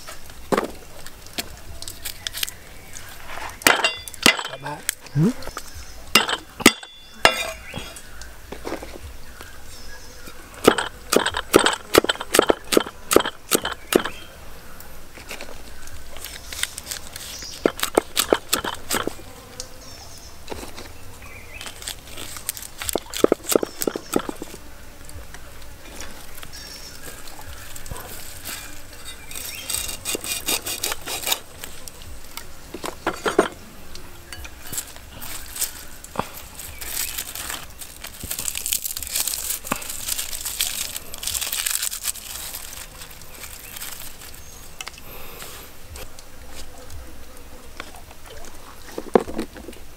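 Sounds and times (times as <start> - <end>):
insects humming: 0.0 - 49.9
handling ingredients: 25.9 - 45.0.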